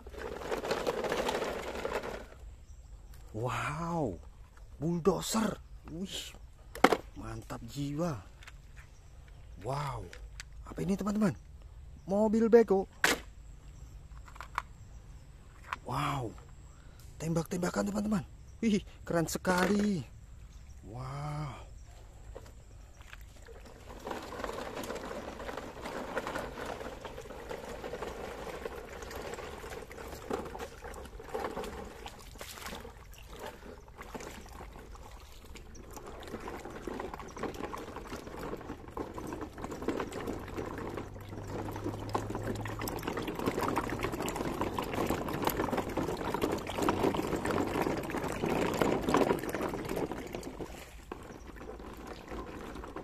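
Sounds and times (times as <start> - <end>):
stream water splashing: 22.9 - 53.0.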